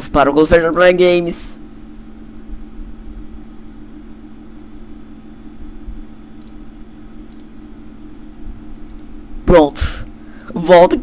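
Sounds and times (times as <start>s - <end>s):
low electrical hum and hiss: 0.0s - 11.0s
faint mouse clicks: 6.4s - 6.6s, 7.3s - 7.5s, 8.8s - 9.1s.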